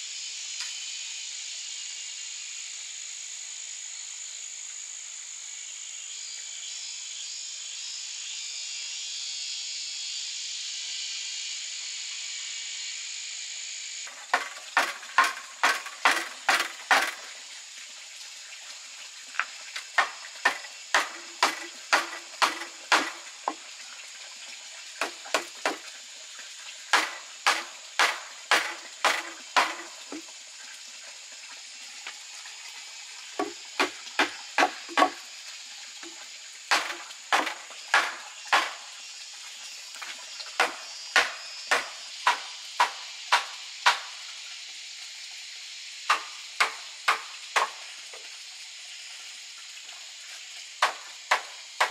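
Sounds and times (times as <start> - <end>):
insects buzzing: 0.0 - 51.9
wood knocking on wooden pole: 26.9 - 30.2, 33.4 - 35.2.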